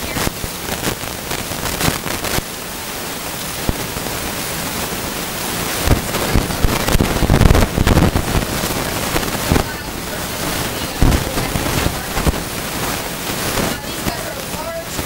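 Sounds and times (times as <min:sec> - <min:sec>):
rushing wind: 0:00.0 - 0:15.0
water rushing: 0:00.0 - 0:15.0
wind buffeting microphone: 0:03.4 - 0:15.0.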